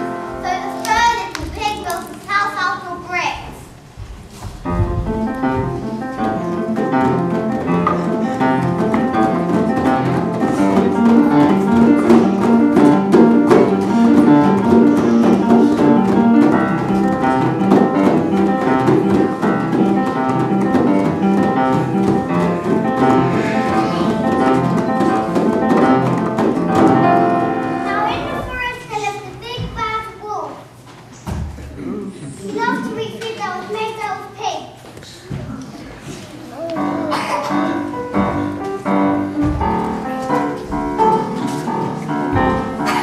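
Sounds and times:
instrumental music: 0:04.4 - 0:28.8, 0:36.5 - 0:43.0.

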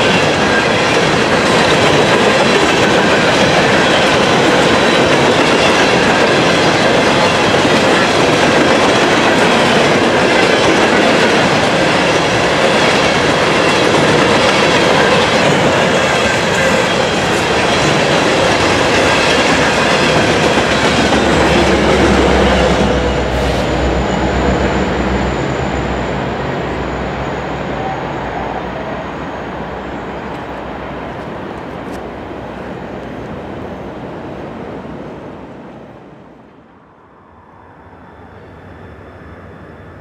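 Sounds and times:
train wheels on rails: 0:00.0 - 0:36.5
steady background noise: 0:13.2 - 0:40.0.

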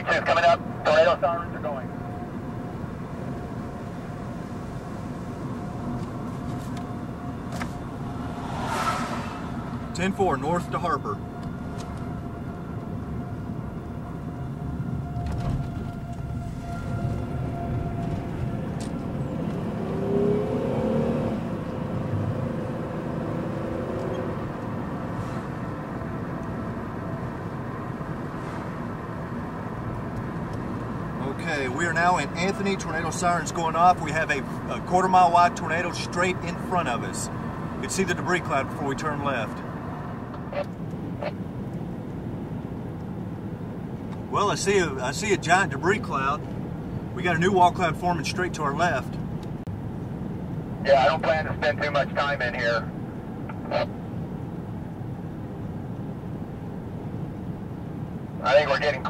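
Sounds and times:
road noise inside vehicle: 0:00.0 - 0:59.0
distant warning siren: 0:00.3 - 0:41.6
rising tone: 0:06.9 - 0:10.0, 0:14.6 - 0:24.4.

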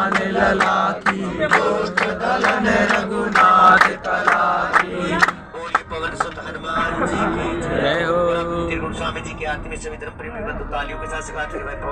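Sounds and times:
rhythmic hand clapping: 0:00.0 - 0:06.6
men singing in unison: 0:00.0 - 0:08.9.

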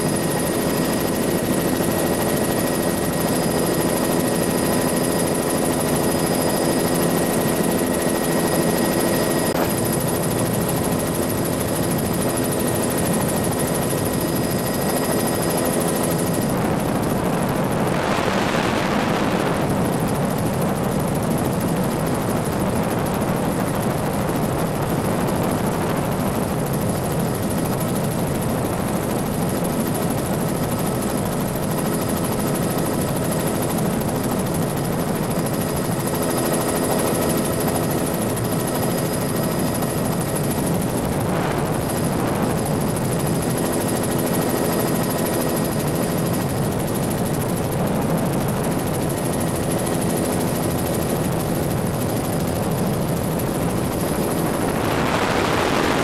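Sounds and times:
helicopter rotor and turbine: 0:00.0 - 0:56.0.

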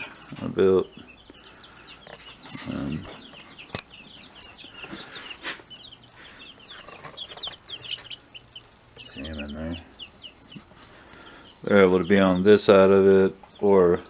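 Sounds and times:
baby chicks peeping: 0:00.0 - 0:14.0.

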